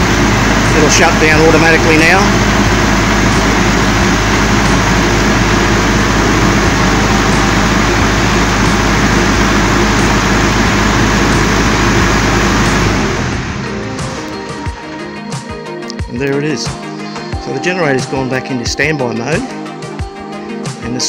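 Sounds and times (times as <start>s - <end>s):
diesel generator humming: 0.0s - 20.8s.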